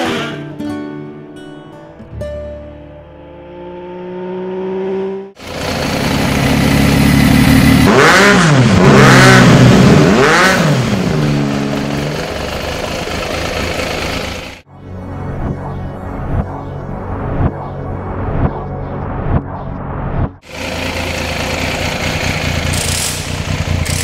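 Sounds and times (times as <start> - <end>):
motorcycle engine revving: 3.2 - 14.6, 20.3 - 24.0.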